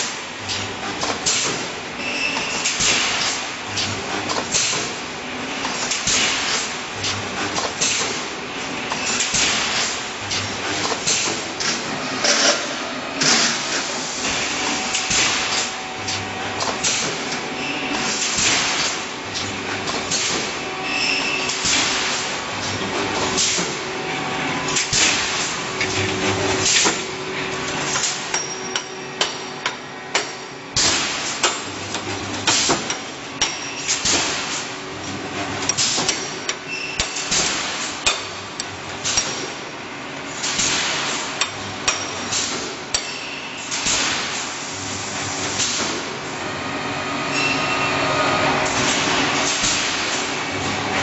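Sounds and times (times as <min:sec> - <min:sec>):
welding machine metallic clanks: 0:00.4 - 0:08.3, 0:08.9 - 0:23.9, 0:24.6 - 0:39.6, 0:40.3 - 0:44.6, 0:48.6 - 0:51.0
steady machine hum: 0:09.9 - 0:36.6, 0:44.5 - 0:51.0.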